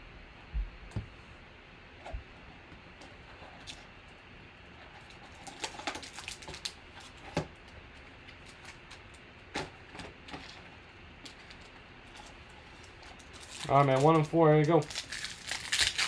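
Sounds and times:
wrappers rustling: 5.2 - 7.2, 11.4 - 16.0.

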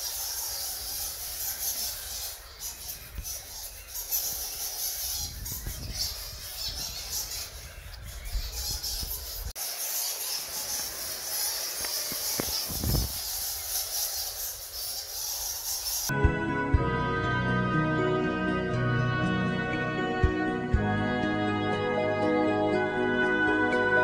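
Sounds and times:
bats squeaking and chattering: 0.0 - 16.1.

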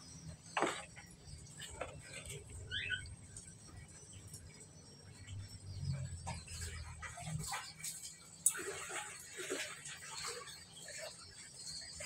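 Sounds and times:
bird squeaky call: 2.7 - 3.1.

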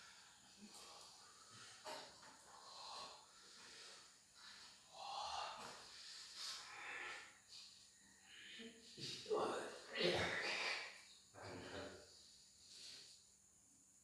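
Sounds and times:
person breathing: 0.0 - 9.2.

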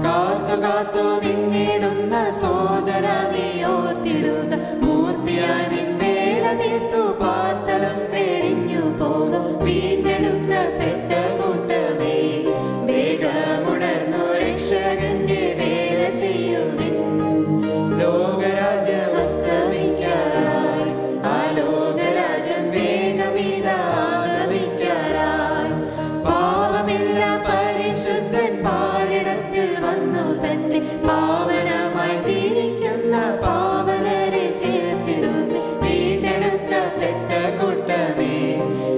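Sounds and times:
group singing a hymn: 0.0 - 38.9
instrumental accompaniment: 0.0 - 38.9.

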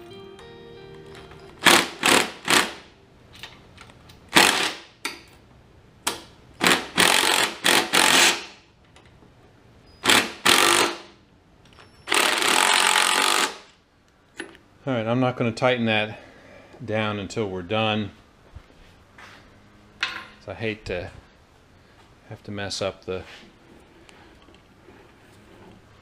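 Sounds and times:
impact wrench hammering: 1.6 - 2.8, 4.3 - 5.3, 6.1 - 8.6, 10.0 - 11.1, 12.1 - 13.7.

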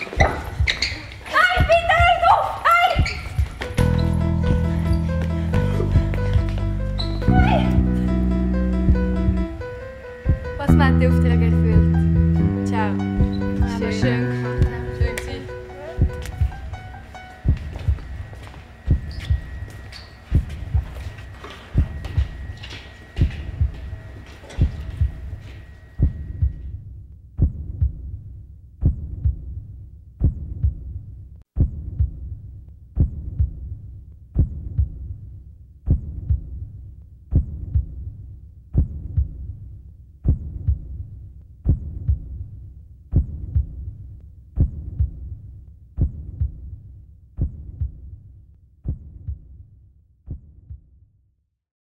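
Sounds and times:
heartbeat double thump: 7.2 - 9.6, 10.3 - 15.3, 16.0 - 16.8, 17.4 - 18.2, 18.9 - 19.6, 20.3 - 21.1, 21.8 - 22.6, 23.2 - 24.0, 24.6 - 26.8, 27.4 - 28.2, 28.8 - 29.6, 30.2 - 31.0, 31.6 - 32.3, 33.0 - 33.8, 34.4 - 35.2, 35.9 - 36.6, 37.3 - 38.1, 38.8 - 39.5, 40.2 - 41.0, 41.6 - 42.4, 43.1 - 43.9, 44.6 - 45.4, 46.0 - 46.8, 47.4 - 48.2, 48.8 - 49.5, 50.3 - 50.9.

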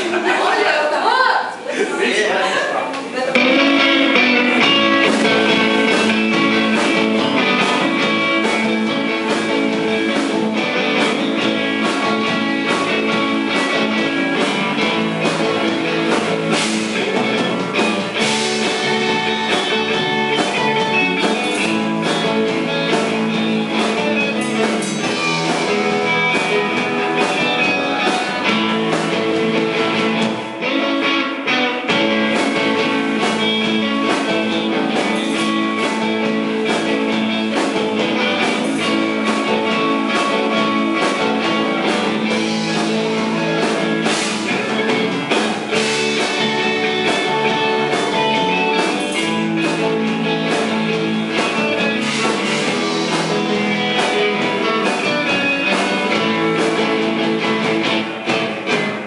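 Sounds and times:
electric guitars: 0.0 - 59.0
drum kit: 3.1 - 59.0.

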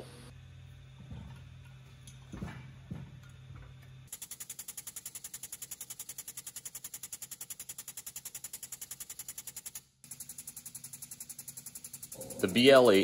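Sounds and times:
air pump clattering and hissing: 0.7 - 13.0.

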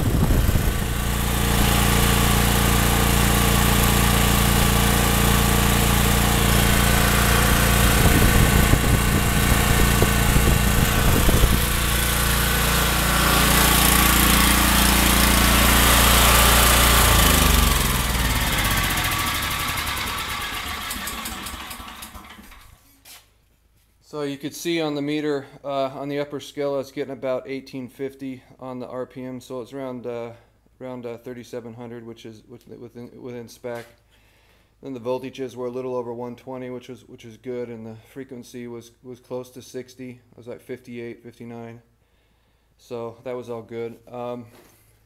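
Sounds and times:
engine winding down: 0.0 - 22.8
generator engine running: 0.0 - 22.8.

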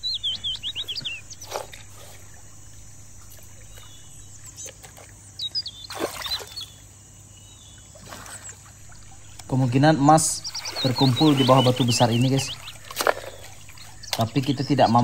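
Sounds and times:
wet gravel scraping: 0.0 - 4.6, 8.8 - 15.0
bird chirping: 0.0 - 15.0
water sloshing in a pan: 8.0 - 14.3.

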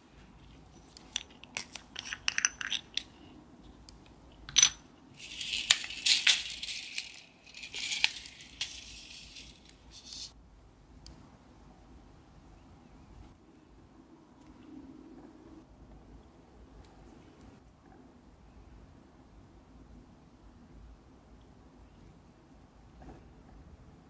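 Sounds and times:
metal beads rattling in plastic case: 5.2 - 10.3.

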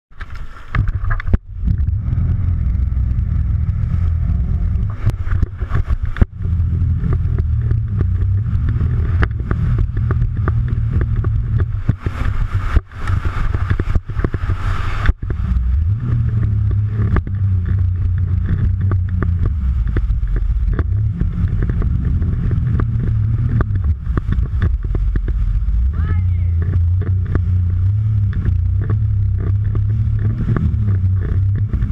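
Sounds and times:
wind: 0.0 - 31.9
water splashing: 0.1 - 31.9
jet ski engine running: 0.2 - 31.9.

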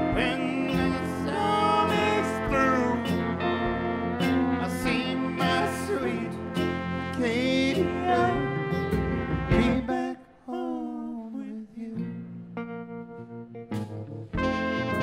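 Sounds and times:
electric guitar: 0.0 - 10.0, 12.0 - 15.0
harmonica with bending notes: 0.0 - 10.0, 14.4 - 15.0
acoustic guitar: 0.0 - 15.0.

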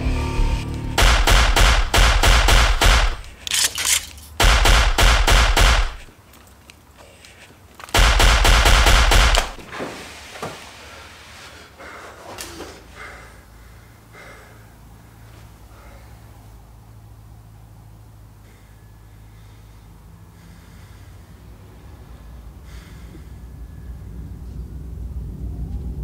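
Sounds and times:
automatic gunfire bursts: 1.0 - 6.1, 7.9 - 9.6.

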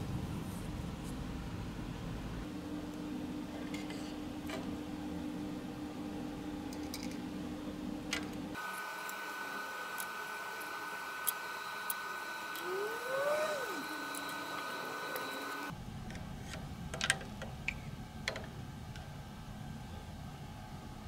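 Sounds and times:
steady high whine: 8.6 - 16.0.

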